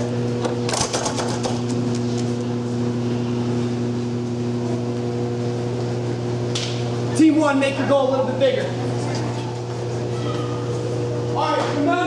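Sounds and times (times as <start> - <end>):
ventilation units humming: 0.0 - 12.0.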